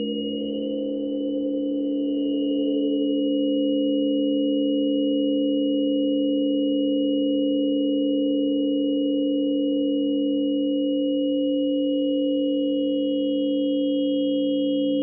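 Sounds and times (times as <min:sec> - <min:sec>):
acoustic feedback tones: 0:00.0 - 0:03.1.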